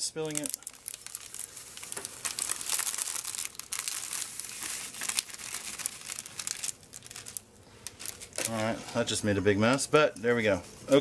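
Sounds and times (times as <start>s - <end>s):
plastic pouch crinkling: 0.2s - 8.7s.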